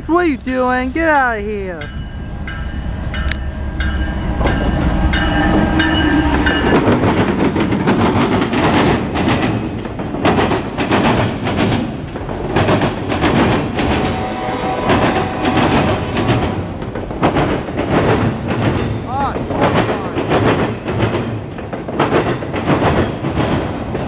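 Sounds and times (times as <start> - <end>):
train rumbling by: 0.0 - 24.0
wheels clattering over rail joints: 1.8 - 24.0
locomotive horn: 13.9 - 16.8.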